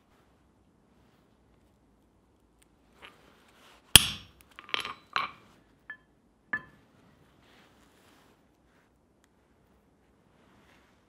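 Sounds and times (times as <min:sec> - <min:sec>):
hammer striking metal punch: 0:04.0 - 0:05.4
light metal clinks: 0:04.0 - 0:06.8.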